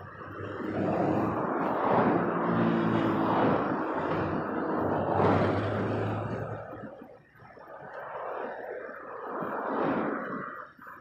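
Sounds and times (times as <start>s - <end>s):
heavy vehicle engine drone: 0.0s - 8.5s
road traffic passing: 0.0s - 11.0s.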